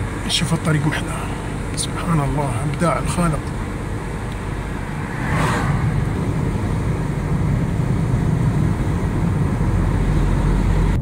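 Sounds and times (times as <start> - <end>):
car engine and road noise: 0.0 - 11.0
car rushing past: 3.3 - 11.0.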